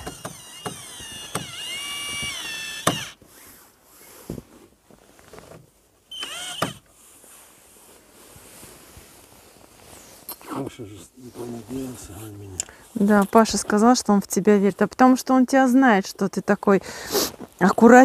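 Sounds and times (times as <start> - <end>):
mechanical creaking squeal: 0.0 - 3.2, 6.1 - 6.8
short squeak: 6.1 - 6.8.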